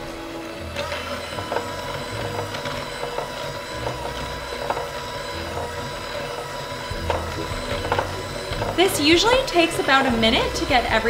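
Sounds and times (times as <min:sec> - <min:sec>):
electric hand mixer running: 0:00.0 - 0:11.0.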